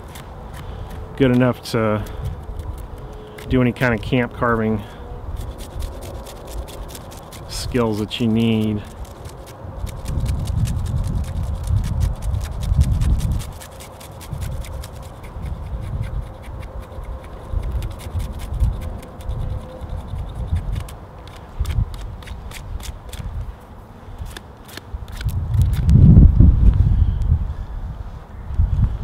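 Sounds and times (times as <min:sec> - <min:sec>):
wood clicks and crackles: 0:00.0 - 0:04.2, 0:05.4 - 0:15.6
knife shaving wooden stick: 0:00.0 - 0:23.5, 0:24.2 - 0:25.9.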